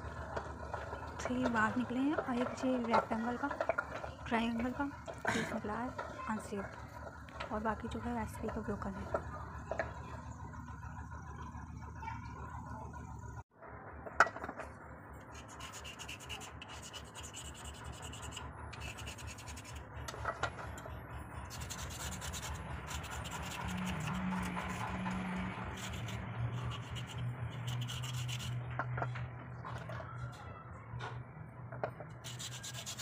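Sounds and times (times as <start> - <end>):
wet slate scraping in steel bowl: 32.2 - 33.0.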